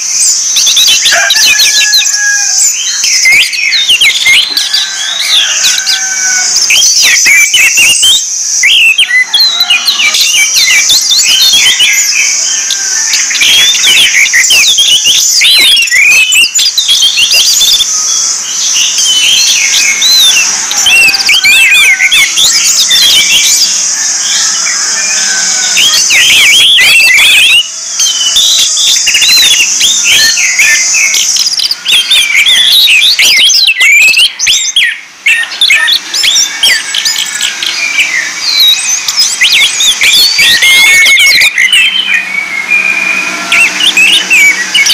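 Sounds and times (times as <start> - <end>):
high-pitched buzz: 0.0 - 44.9.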